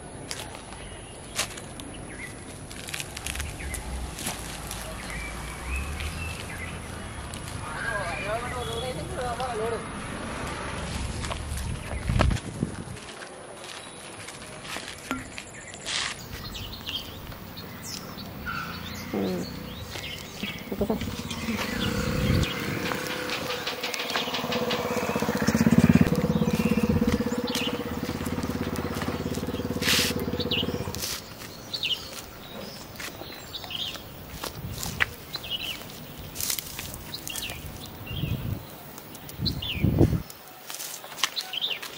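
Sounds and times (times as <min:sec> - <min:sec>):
vehicle engine passing: 0:03.2 - 0:11.8, 0:16.4 - 0:34.0
birds chirping: 0:03.4 - 0:10.4, 0:15.1 - 0:40.6
footsteps: 0:19.4 - 0:37.6.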